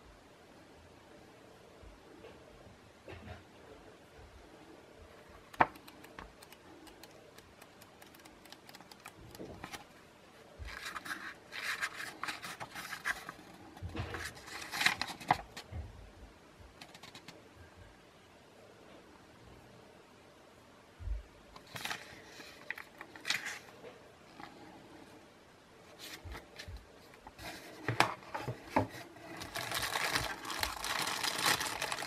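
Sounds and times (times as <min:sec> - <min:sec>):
paper pages rustling: 0:05.4 - 0:09.9, 0:10.6 - 0:15.7, 0:21.6 - 0:23.8, 0:26.0 - 0:32.0.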